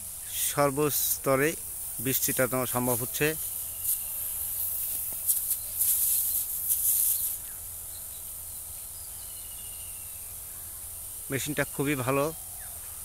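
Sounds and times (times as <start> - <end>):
spray nozzle hissing: 0.0 - 8.4
faint high chirps: 2.6 - 6.4, 7.0 - 13.0.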